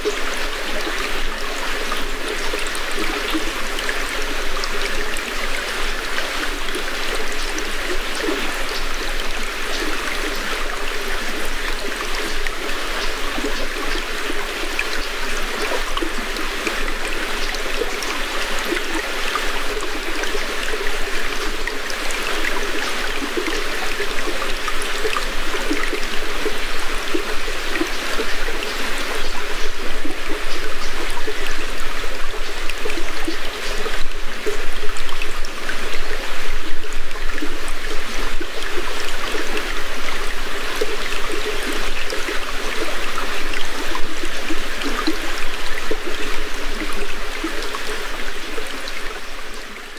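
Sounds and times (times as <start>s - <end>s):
stream trickling over stones: 0.0s - 49.9s.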